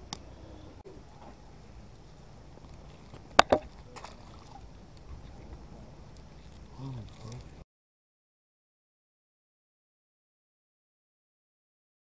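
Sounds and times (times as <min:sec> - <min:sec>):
low background rumble: 0:00.0 - 0:07.6
sharp knocks: 0:03.4 - 0:03.7.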